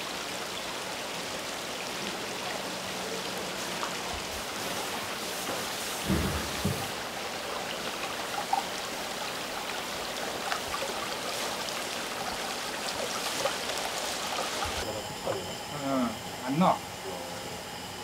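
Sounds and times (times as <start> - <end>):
running water splashing: 0.0 - 16.7
low knocks: 6.0 - 6.9.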